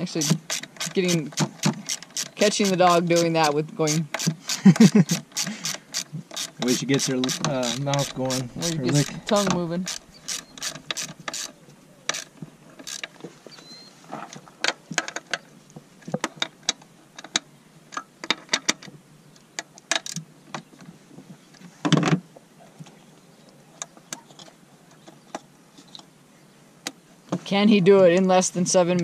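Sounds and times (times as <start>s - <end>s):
hand ratchet clicking: 0.2s - 11.5s, 12.1s - 13.1s.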